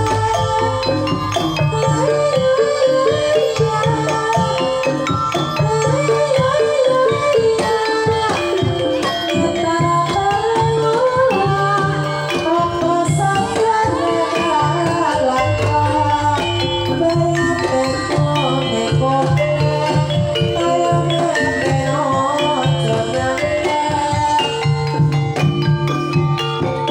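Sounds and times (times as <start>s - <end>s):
woman singing: 0.0s - 25.6s
bamboo xylophone struck with mallets: 0.0s - 26.9s
hand drums keeping the beat: 0.0s - 26.9s
gongs: 14.7s - 22.8s.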